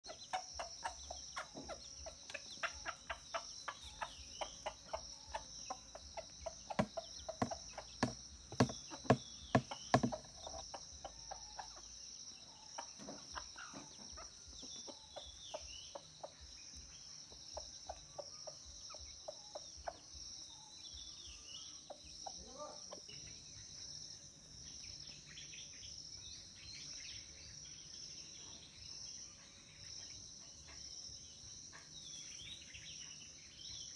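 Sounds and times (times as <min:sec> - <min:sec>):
chickens pecking grain: 0:00.0 - 0:11.8
faint bird chirps: 0:00.0 - 0:33.9
high insect chorus: 0:00.0 - 0:33.9.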